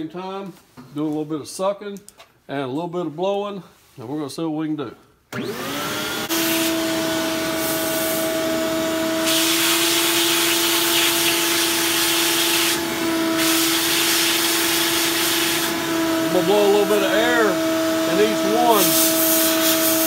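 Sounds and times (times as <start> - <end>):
shop vac motor whining: 5.3 - 20.0.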